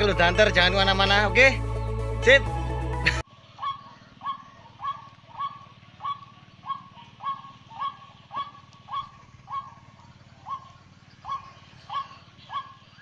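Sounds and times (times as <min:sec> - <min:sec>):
waterhen croaking call: 0:03.4 - 0:13.0.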